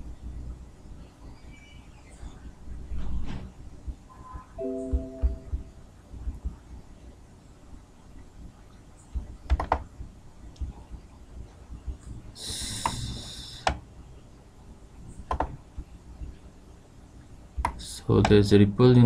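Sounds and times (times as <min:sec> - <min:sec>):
computer mouse clicks: 0:09.5 - 0:09.8, 0:12.8 - 0:13.8, 0:15.3 - 0:15.6.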